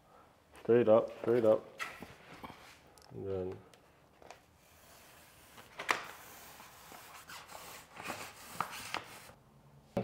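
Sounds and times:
vinyl sheet rustling: 5.4s - 9.4s.

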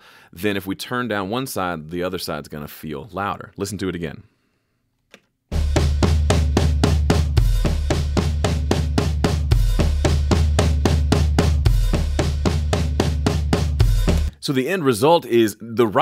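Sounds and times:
drum kit groove: 5.5s - 14.4s.

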